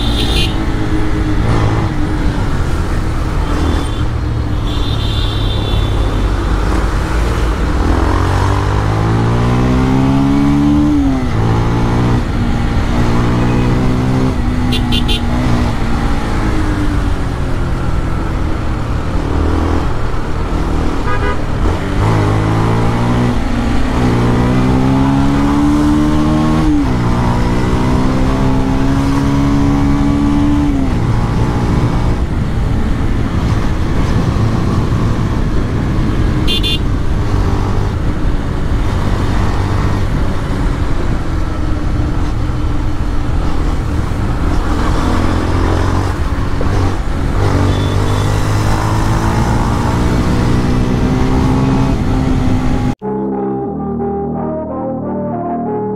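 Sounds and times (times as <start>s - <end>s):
horn toot: 0.0s - 0.6s, 14.7s - 15.4s, 21.0s - 21.5s, 36.4s - 36.8s
wind and road noise: 0.0s - 53.0s
motorcycle engine accelerating: 21.6s - 53.0s.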